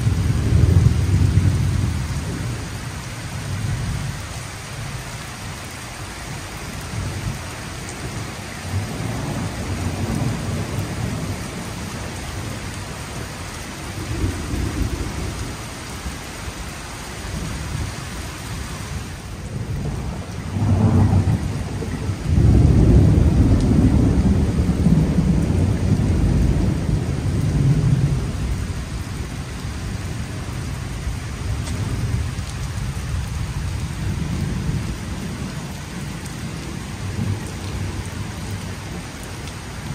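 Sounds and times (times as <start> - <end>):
rolling thunder: 0.0 - 2.7, 13.9 - 15.6, 19.4 - 30.3
rain falling on pavement: 0.0 - 39.9.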